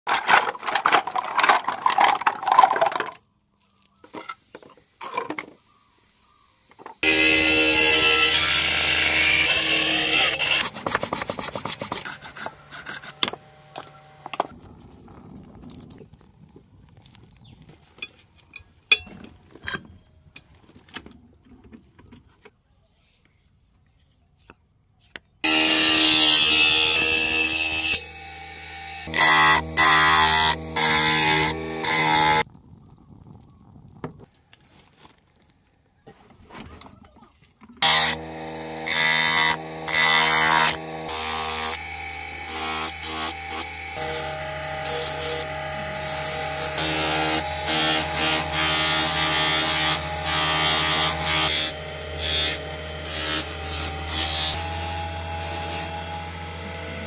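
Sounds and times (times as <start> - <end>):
hand tools scraping and tapping: 10.5 - 14.6, 17.7 - 22.6.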